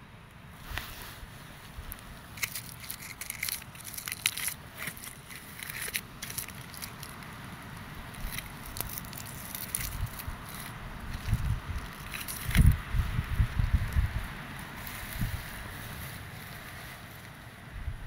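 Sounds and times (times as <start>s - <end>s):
dry leaves crackling: 0.6s - 17.8s.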